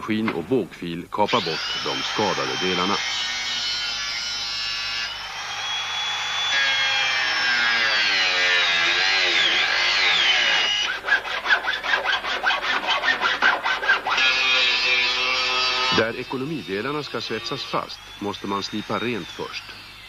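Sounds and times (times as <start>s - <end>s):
angle grinder cutting sheet steel: 1.3s - 19.8s
hacksaw rasping on metal: 9.3s - 16.0s.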